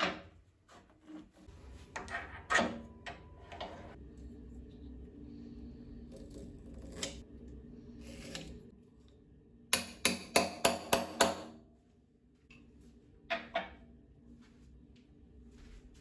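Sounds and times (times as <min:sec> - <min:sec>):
hammer striking metal into wood: 0:09.7 - 0:11.6.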